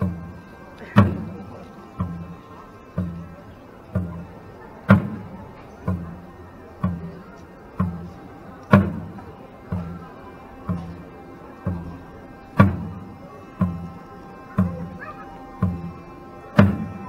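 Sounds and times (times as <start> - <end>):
hand drum beating: 2.9 - 12.0, 12.6 - 16.0, 16.6 - 17.0.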